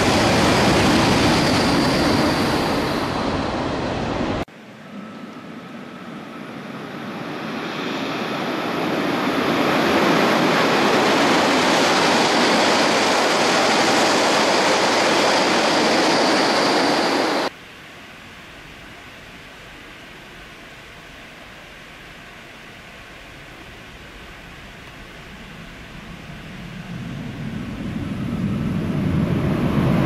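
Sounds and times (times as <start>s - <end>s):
high-speed train rushing roar: 0.0s - 17.6s, 18.2s - 30.0s.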